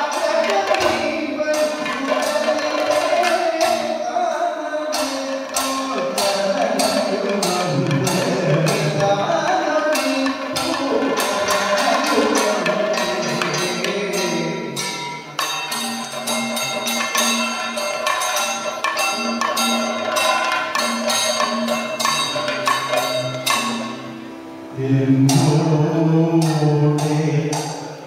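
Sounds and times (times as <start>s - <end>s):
drums playing fast rhythm: 0.0s - 24.1s
small metal cymbals: 9.6s - 24.7s.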